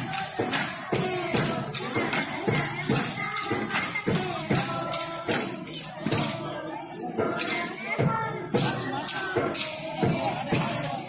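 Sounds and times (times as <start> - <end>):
bright jingling ring: 0.0 - 11.0
folk dance music: 0.0 - 11.0
sharp percussion strokes: 0.0 - 11.0.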